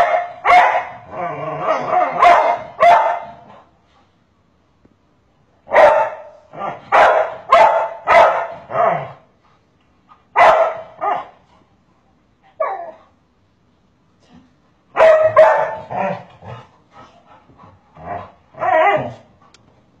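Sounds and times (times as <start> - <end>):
dog barking: 0.0 - 1.0, 1.8 - 3.5, 5.7 - 9.1, 10.4 - 11.4, 14.9 - 16.2.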